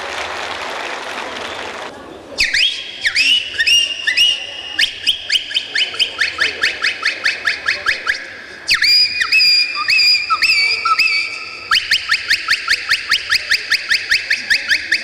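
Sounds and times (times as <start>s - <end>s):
applause: 0.0s - 2.0s
bird-like whistled calls: 2.4s - 15.0s.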